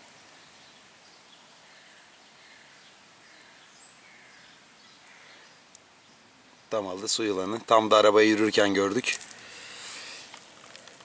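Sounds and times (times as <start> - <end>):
distant bird calls: 0.0 - 6.9, 9.2 - 11.0
faint steady hiss: 0.0 - 11.0.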